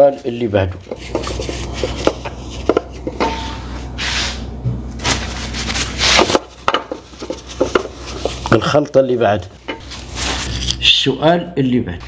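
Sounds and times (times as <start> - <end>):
steady low hum: 0.0 - 12.0
tissue paper rubbing on plate: 0.9 - 2.7, 3.5 - 8.6, 9.8 - 10.7.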